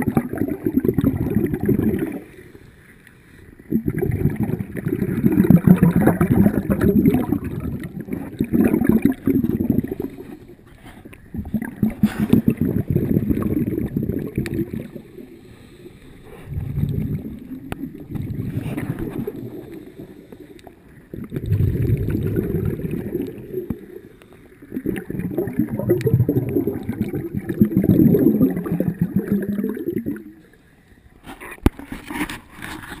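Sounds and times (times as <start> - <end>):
muffled water sloshing: 3.6 - 30.4.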